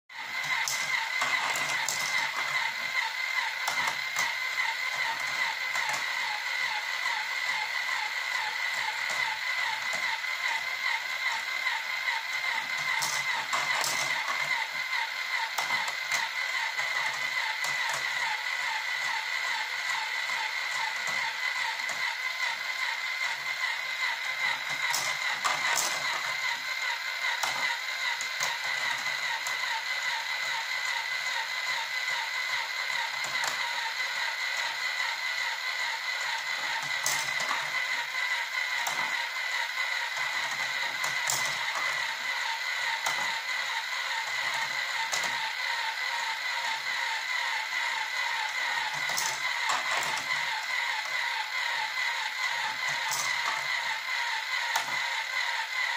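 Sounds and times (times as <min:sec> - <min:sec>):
motorized ball lift whirring: 0:00.1 - 0:55.9
steel balls rattling on rails: 0:24.5 - 0:26.5, 0:40.2 - 0:43.4, 0:48.3 - 0:51.4, 0:52.5 - 0:54.0.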